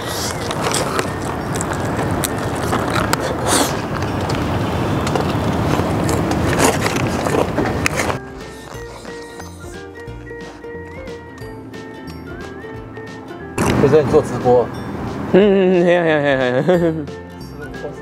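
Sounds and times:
chewing crispy chicken: 0.0 - 3.8, 5.4 - 10.6
street traffic: 0.0 - 18.0.

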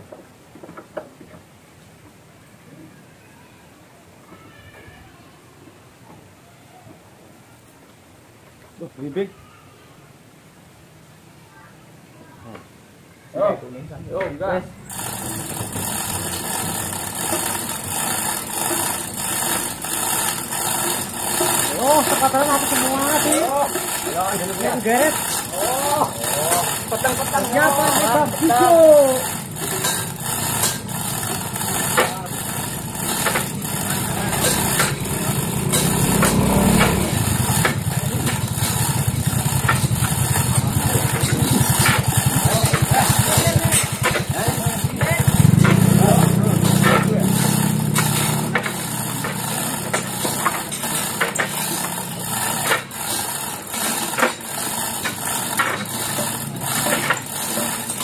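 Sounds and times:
small engine idling: 14.6 - 58.0
mechanical running noise: 14.8 - 58.0.

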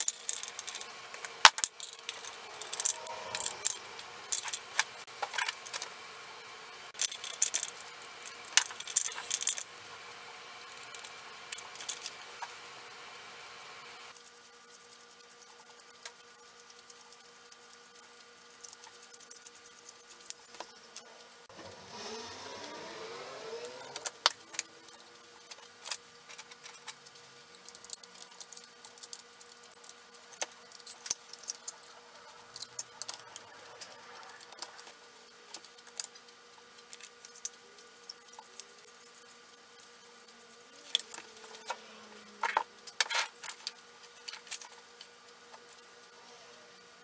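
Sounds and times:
rising whir: 2.0 - 5.1, 21.5 - 25.4, 40.6 - 42.5.

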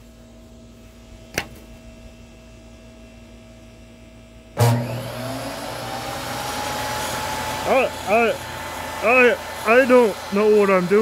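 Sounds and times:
table saw motor spinning up: 4.6 - 11.0.

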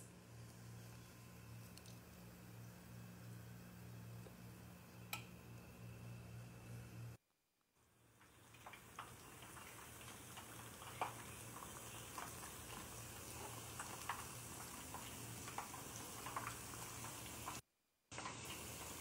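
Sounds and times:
chicken deep-frying in oil: 7.8 - 19.0.

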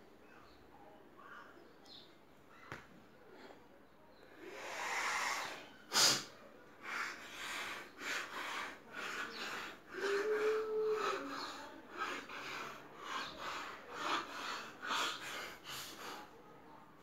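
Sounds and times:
person breathing hard: 4.4 - 16.5.

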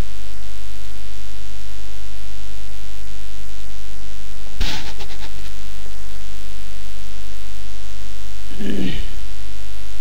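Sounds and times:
electrical mains hum: 0.0 - 10.0
short noise burst: 4.6 - 5.5.

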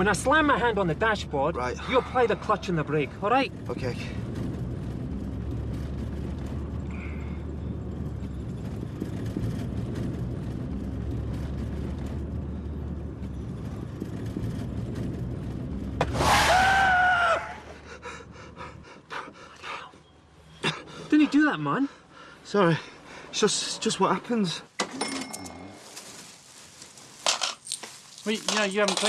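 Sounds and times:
car engine and road rumble: 0.0 - 29.0
tyre screech: 16.0 - 17.8.

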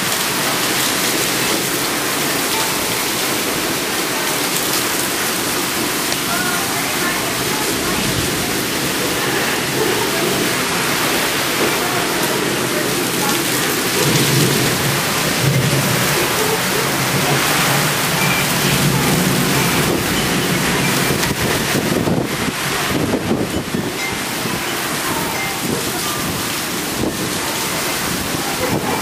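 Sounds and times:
heavy rain pouring: 0.0 - 29.0
low roll of thunder: 6.5 - 23.9.

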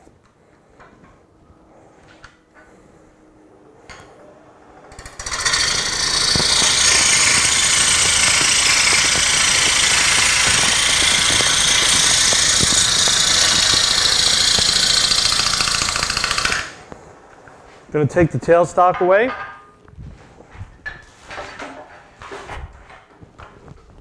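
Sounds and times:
wood lathe gouge hissing: 4.9 - 16.8.

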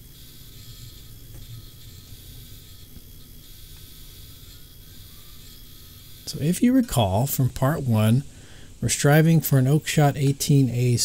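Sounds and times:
belt grinder on steel blade: 0.0 - 7.1.

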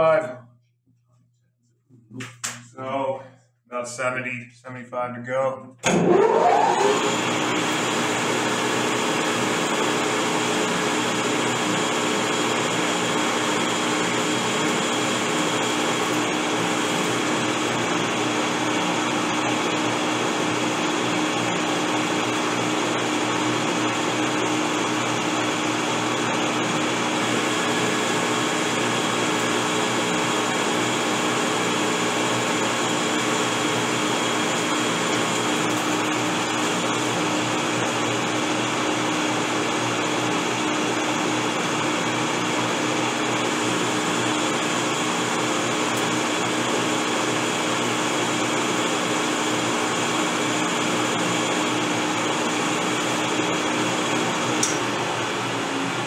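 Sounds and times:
metal lathe motor whine: 5.8 - 40.9.

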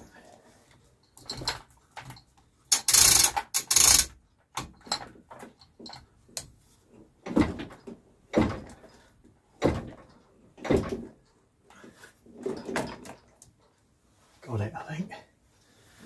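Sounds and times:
hoist chain rattling: 2.7 - 4.2
metallic clunks and knocks: 7.2 - 9.0, 9.6 - 11.2.

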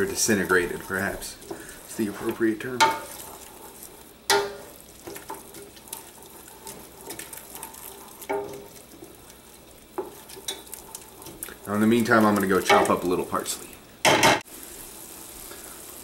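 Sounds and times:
food sizzling in oil: 0.0 - 16.0
wooden spoon knocking on pot: 2.3 - 3.2, 4.3 - 5.8, 8.2 - 8.7.

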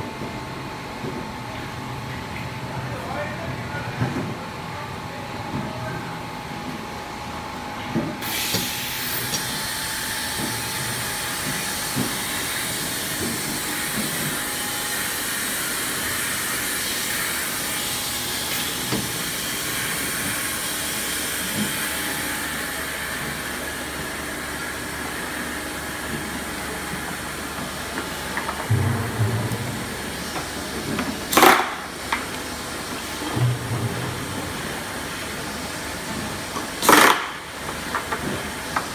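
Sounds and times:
filling machine hissing: 8.2 - 13.2.

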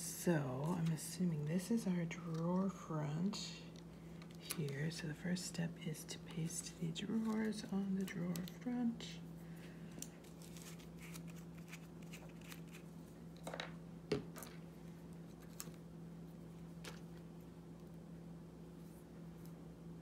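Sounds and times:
steady low hum: 0.0 - 20.0
small pieces tapping and rustling: 13.4 - 14.6.

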